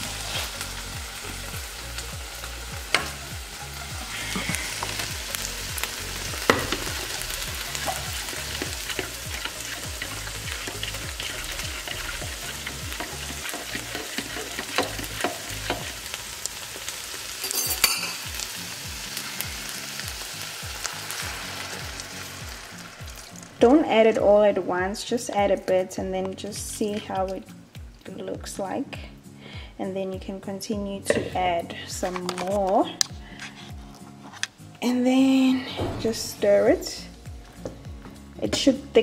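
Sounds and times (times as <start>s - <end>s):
food sizzling in a pan: 0.0s - 29.2s.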